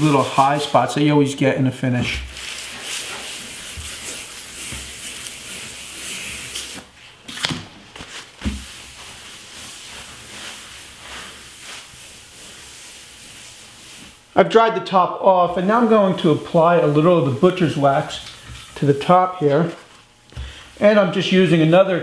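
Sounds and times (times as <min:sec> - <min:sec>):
wet sandpaper rubbing on wood: 0:00.0 - 0:00.9, 0:02.3 - 0:06.8, 0:08.6 - 0:14.2, 0:15.8 - 0:19.9.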